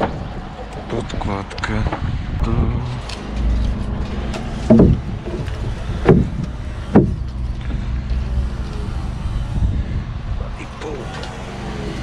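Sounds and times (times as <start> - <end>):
low machine hum: 2.1 - 12.0
dull knocks on formwork: 4.7 - 5.0, 6.0 - 7.3.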